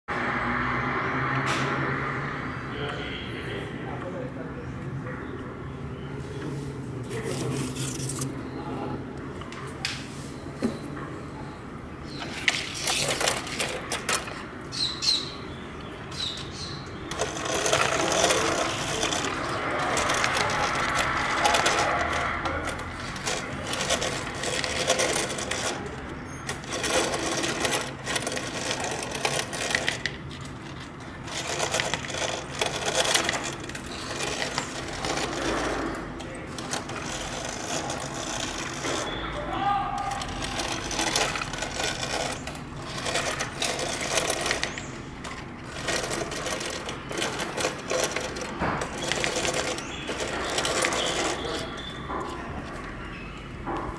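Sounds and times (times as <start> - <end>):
toy robot gears clattering and whirring: 7.1 - 8.3, 12.1 - 15.4, 16.1 - 53.9.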